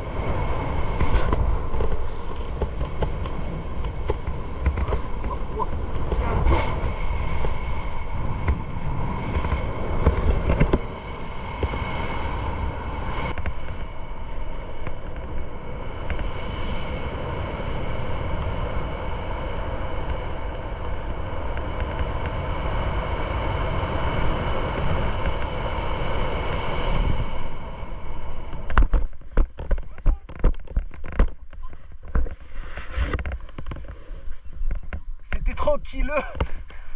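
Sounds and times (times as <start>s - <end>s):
wind rushing over microphone: 0.0s - 36.9s.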